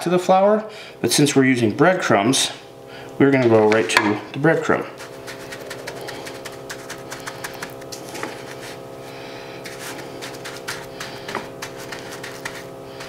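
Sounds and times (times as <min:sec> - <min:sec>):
steady hum: 0:00.0 - 0:13.0
hands patting breadcrumbs: 0:04.6 - 0:08.8, 0:09.5 - 0:13.0.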